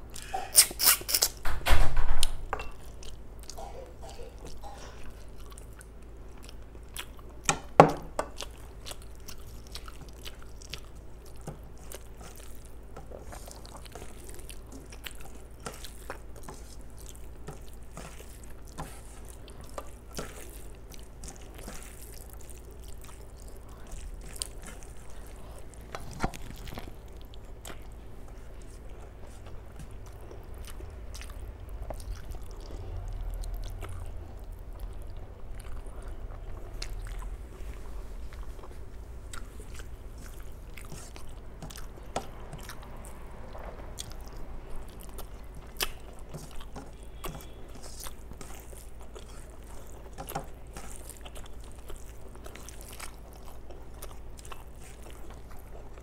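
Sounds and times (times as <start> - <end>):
chewing and wet mouth sounds: 0.0 - 1.4, 2.6 - 56.0
low steady hum: 0.0 - 56.0.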